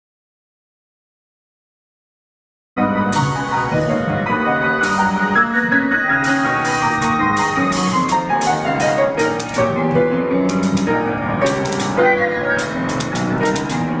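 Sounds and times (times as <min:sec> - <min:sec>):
chamber ensemble with piano: 0:02.8 - 0:14.0.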